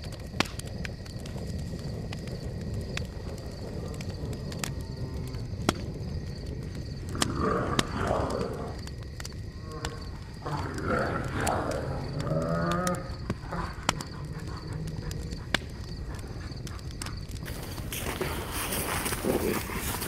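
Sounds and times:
wolf growling: 0:06.5 - 0:20.0.

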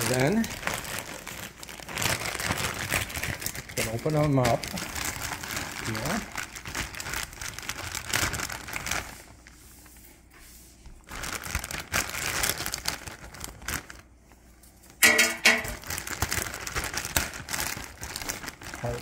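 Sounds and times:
plastic bag crinkling: 0:00.0 - 0:09.6, 0:11.0 - 0:19.0
fries clattering into basket: 0:15.0 - 0:16.2.

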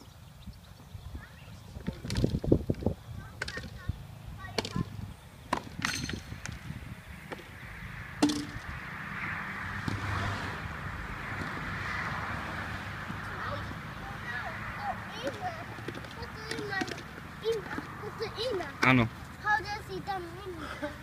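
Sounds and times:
tennis balls struck with rackets: 0:08.2 - 0:08.8.

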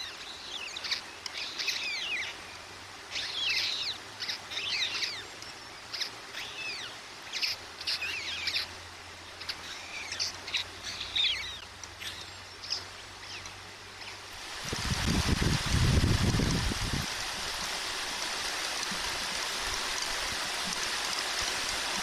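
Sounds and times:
birds chirping: 0:00.0 - 0:14.3.

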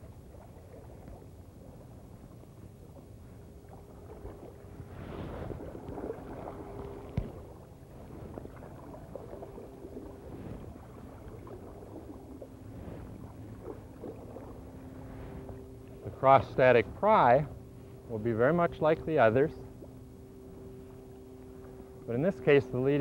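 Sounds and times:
paddle swishing and splashing: 0:00.0 - 0:17.0.

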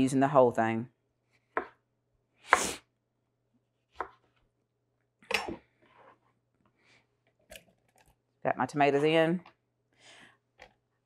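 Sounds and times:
knife chopping on cutting board: 0:01.5 - 0:01.8, 0:03.9 - 0:04.2.

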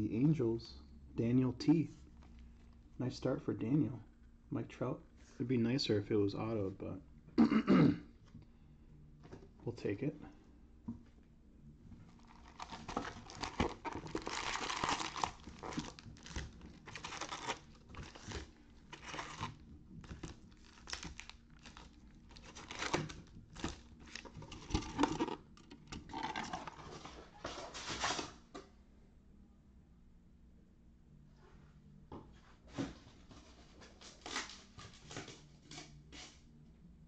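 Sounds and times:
foil packs crinkling: 0:12.1 - 0:28.4, 0:34.0 - 0:35.4.

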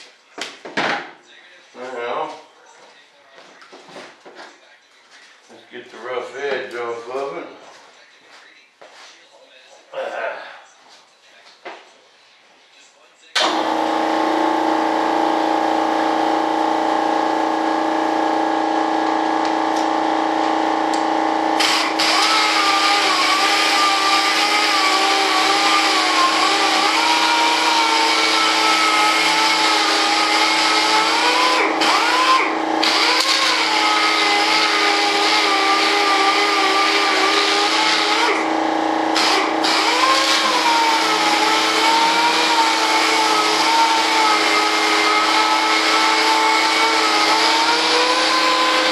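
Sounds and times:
orbital sander whine: 0:13.5 - 0:48.9.

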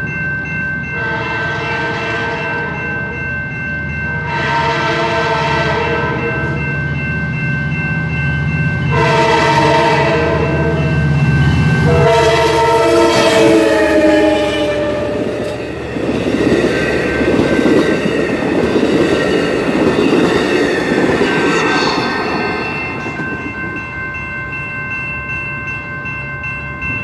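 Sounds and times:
high ringing tone: 0:00.0 - 0:27.0
locomotive air horn blasts: 0:01.0 - 0:02.7, 0:04.2 - 0:06.4, 0:08.9 - 0:10.8, 0:11.9 - 0:15.6.

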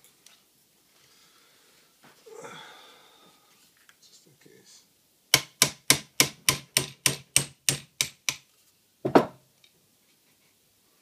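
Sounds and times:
hammer tapping metal punch: 0:05.4 - 0:08.4.

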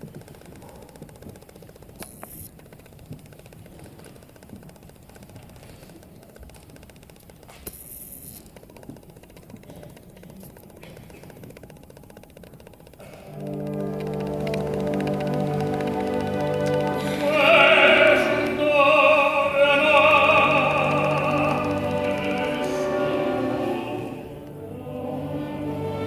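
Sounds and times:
faint clicks: 0:00.0 - 0:24.8
audience rustling and shuffling: 0:13.0 - 0:26.0.

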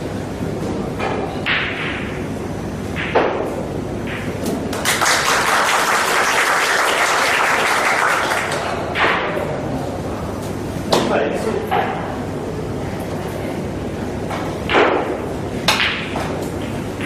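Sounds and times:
audience applauding: 0:04.7 - 0:08.7.

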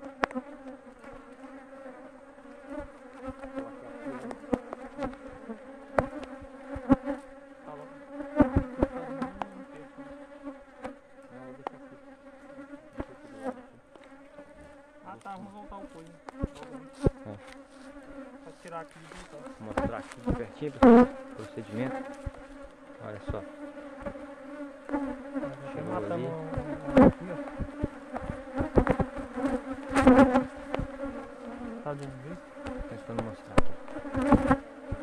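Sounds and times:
honeybees buzzing: 0:00.0 - 0:35.0.

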